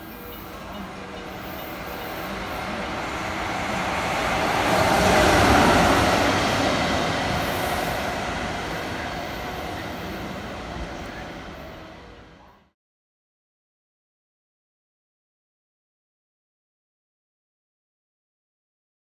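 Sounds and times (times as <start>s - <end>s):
train wheels rattling on rail: 0.0s - 12.2s.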